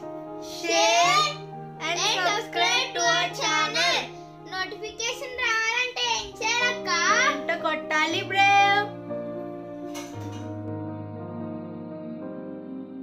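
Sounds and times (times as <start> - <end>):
background music with held chords: 0.0 - 13.0.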